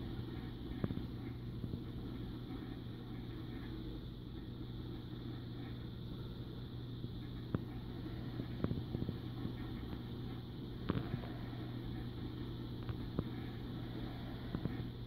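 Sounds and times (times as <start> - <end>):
aquarium pumps humming: 0.0 - 15.0.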